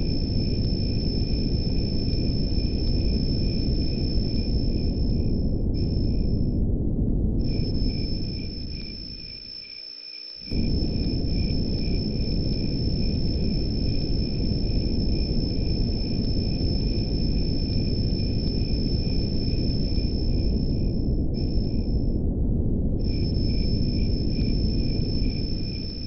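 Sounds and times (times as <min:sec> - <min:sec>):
crickets chirring: 0:00.0 - 0:06.5, 0:07.4 - 0:22.1, 0:23.0 - 0:26.0
low noise bed: 0:10.4 - 0:26.0.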